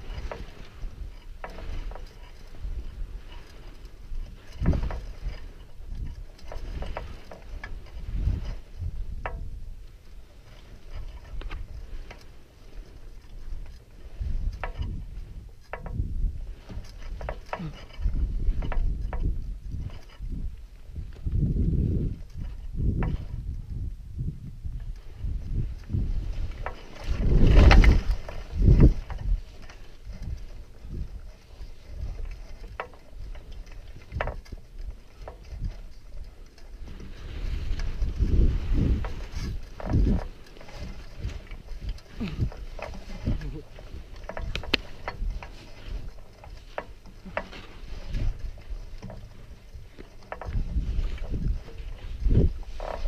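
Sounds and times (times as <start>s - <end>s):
wind rumble on microphone: 0.0s - 53.0s
skis scraping on snow: 36.8s - 53.0s.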